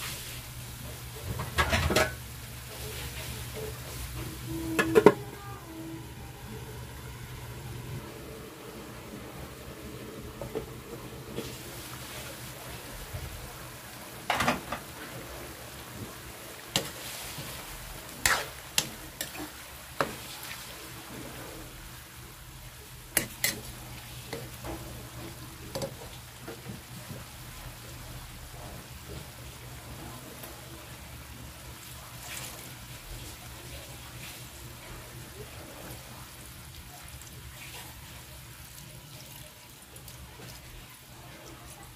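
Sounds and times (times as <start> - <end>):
metal spoon scraping wok: 18.2 - 20.1.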